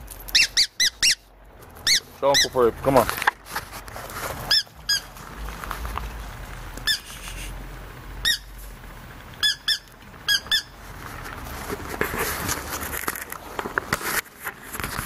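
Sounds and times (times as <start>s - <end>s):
squeaky dog toy squeaking: 0.3s - 2.6s, 4.5s - 5.1s, 6.8s - 7.2s, 8.2s - 8.5s, 9.4s - 10.8s.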